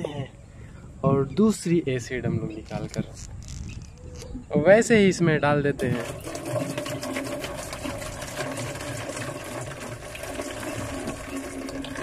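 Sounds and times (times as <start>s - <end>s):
liquid pouring and splashing: 5.8s - 12.0s.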